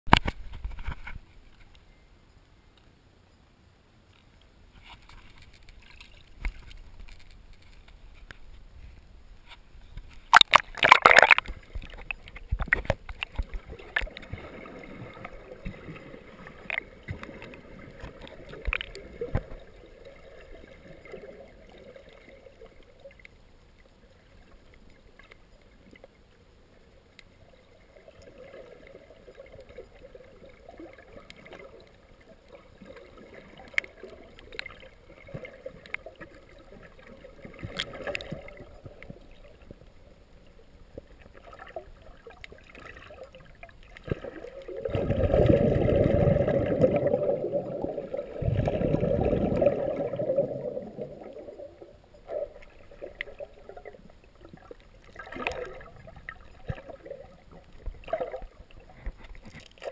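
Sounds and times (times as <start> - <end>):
underwater clicks and knocks: 0.1 - 1.8, 4.8 - 14.5, 16.6 - 19.6
splash into water: 10.3 - 11.5.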